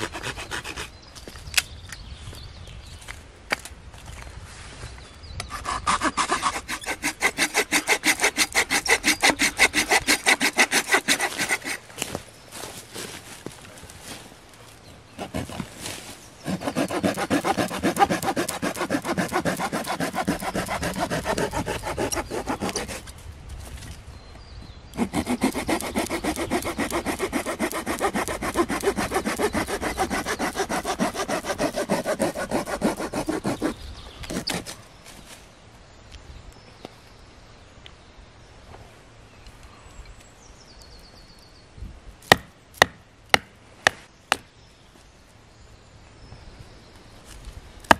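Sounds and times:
hand saw cutting a branch: 0:00.0 - 0:01.0, 0:05.5 - 0:12.2, 0:15.2 - 0:23.2, 0:24.9 - 0:34.8.

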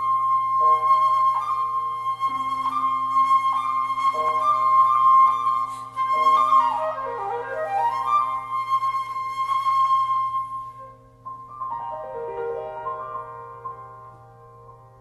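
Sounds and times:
flute playing: 0:00.0 - 0:12.6
piano accompaniment: 0:00.0 - 0:15.0.

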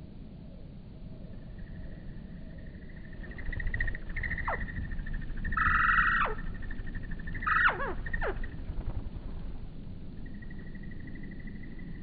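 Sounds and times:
hummingbird buzzy chatter: 0:03.1 - 0:09.6
pulsing high tone: 0:03.2 - 0:08.6
squeaky chirps sliding down: 0:05.5 - 0:06.6, 0:07.4 - 0:08.5.

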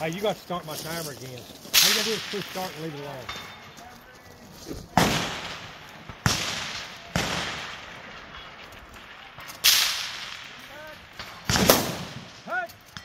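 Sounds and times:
rifle shots ringing off: 0:04.9 - 0:12.5.

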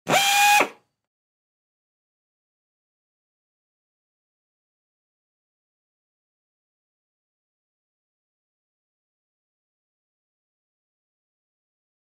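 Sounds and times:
pneumatic screwdriver whine: 0:00.0 - 0:00.8.

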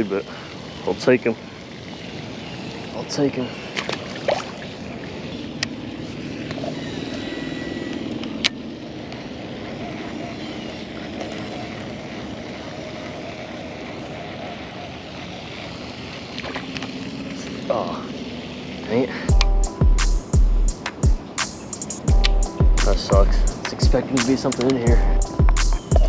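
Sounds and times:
distant engine drone: 0:00.0 - 0:26.0
fish splashing into water: 0:03.6 - 0:05.0
sharp clicks: 0:20.8 - 0:26.0.

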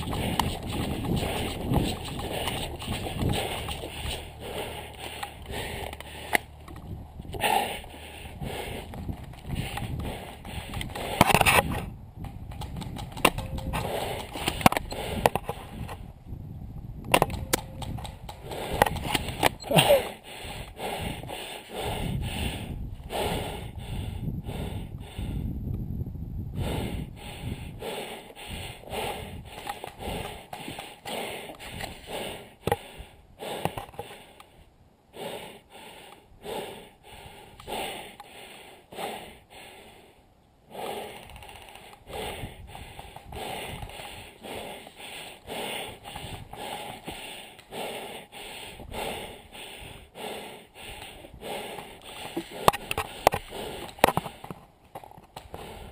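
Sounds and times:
person breathing hard: 0:00.0 - 0:06.6, 0:07.3 - 0:11.4, 0:12.9 - 0:15.9, 0:17.2 - 0:25.6, 0:26.5 - 0:54.6, 0:55.4 - 0:55.9
sharp clacks: 0:12.5 - 0:15.5.

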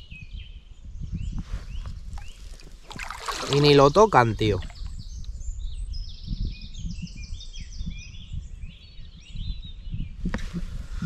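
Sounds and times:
songbird chirping and trilling: 0:00.0 - 0:10.2
microphone handling noise: 0:01.2 - 0:05.4, 0:10.1 - 0:11.0.

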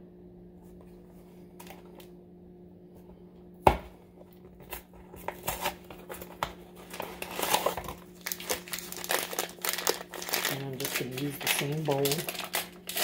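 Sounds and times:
cardboard tearing: 0:05.3 - 0:13.0.

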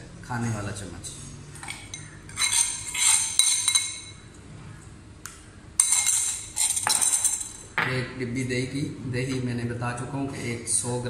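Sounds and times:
spoon scraping steel bowl: 0:01.6 - 0:04.2, 0:05.8 - 0:07.6.

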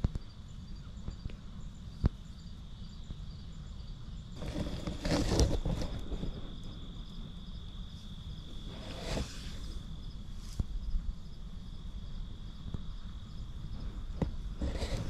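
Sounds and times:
insects chirring: 0:00.0 - 0:15.0
rustling through brush: 0:04.4 - 0:06.5, 0:08.0 - 0:10.8, 0:14.6 - 0:15.0.

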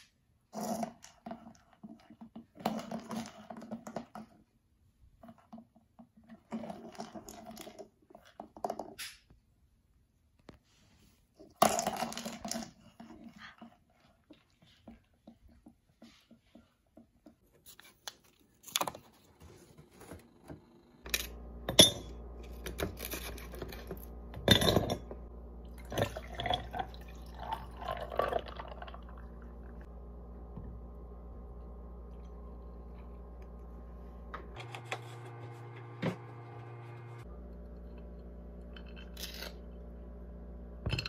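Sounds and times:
steady low hum: 0:19.4 - 0:41.0
liquid pouring: 0:25.6 - 0:29.9.

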